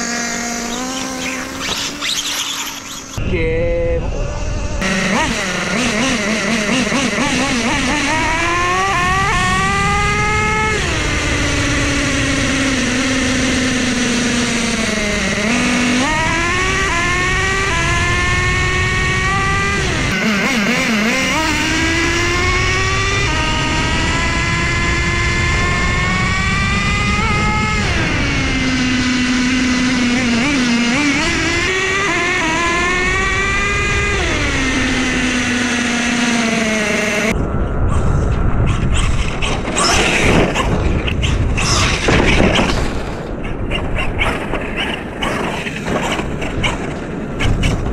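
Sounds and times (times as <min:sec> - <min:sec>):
model truck engine running hard: 0:04.8 - 0:37.3.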